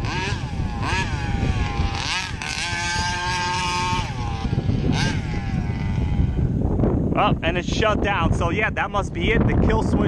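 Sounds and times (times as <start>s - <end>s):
two-stroke engine revving: 0.0s - 6.7s.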